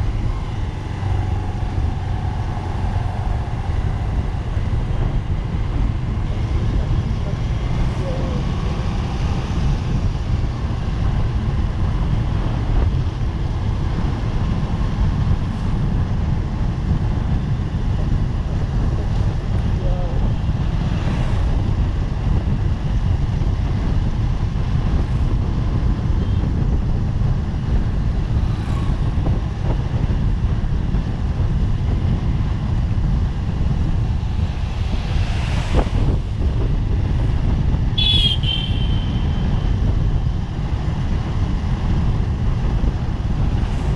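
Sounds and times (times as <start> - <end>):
traffic noise: 0.0 - 43.9
wind rumble on microphone: 0.0 - 43.9.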